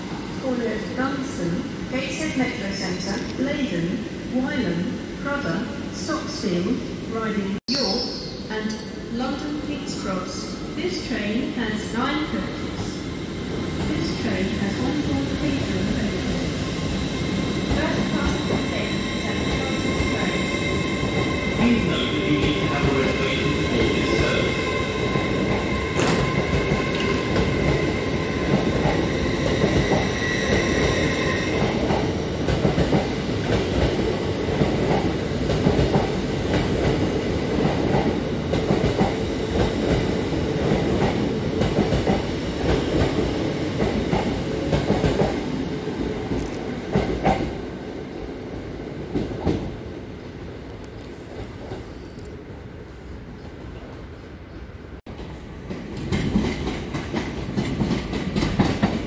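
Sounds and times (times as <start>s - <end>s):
train wheels rumbling on rail: 11.6s - 50.0s, 53.3s - 59.0s.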